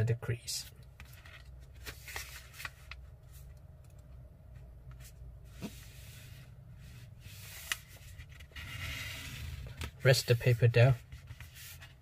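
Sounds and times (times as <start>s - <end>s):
paper rustling and creasing: 1.0s - 3.5s, 7.2s - 12.0s.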